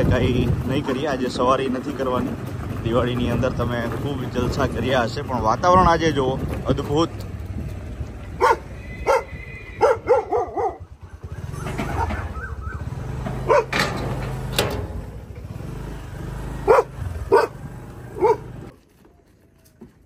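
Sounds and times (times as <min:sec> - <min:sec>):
dog barking: 0:08.4 - 0:10.9, 0:13.4 - 0:13.8, 0:16.6 - 0:18.6.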